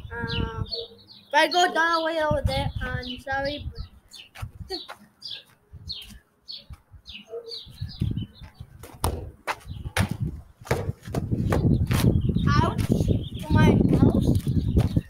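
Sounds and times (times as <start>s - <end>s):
small bird chirping: 0.0s - 10.0s, 11.4s - 15.0s
ball thudding off wall: 8.8s - 9.4s, 10.0s - 11.7s.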